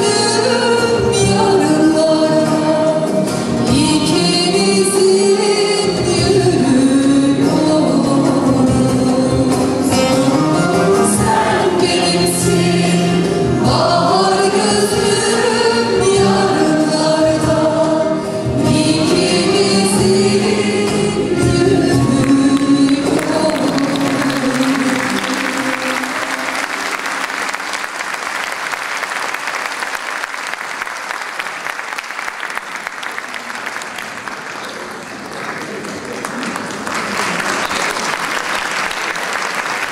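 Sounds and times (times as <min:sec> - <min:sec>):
woman singing into microphone: 0:00.0 - 0:10.0, 0:10.8 - 0:26.2
instrumental accompaniment: 0:00.0 - 0:28.1
choir voices: 0:10.6 - 0:27.8
audience applauding: 0:22.2 - 0:39.9.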